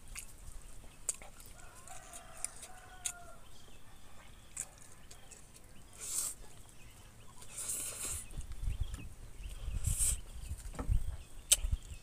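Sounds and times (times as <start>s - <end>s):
lip smacking and chewing: 0.0s - 8.6s, 11.4s - 12.0s.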